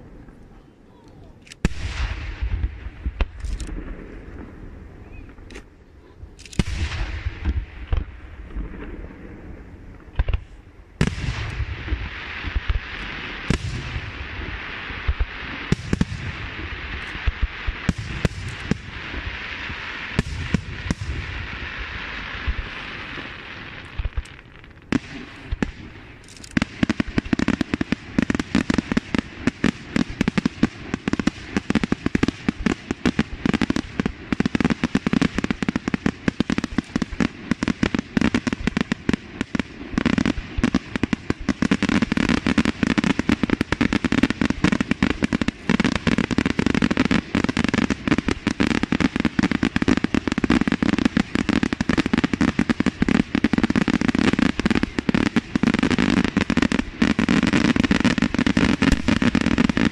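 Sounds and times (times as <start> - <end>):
fireworks shell bursts and crackling: 58.1 - 59.9.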